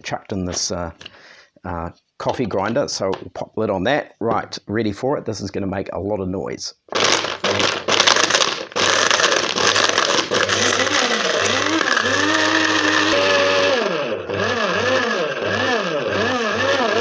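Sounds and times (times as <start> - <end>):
electric coffee grinder running: 7.0 - 17.0.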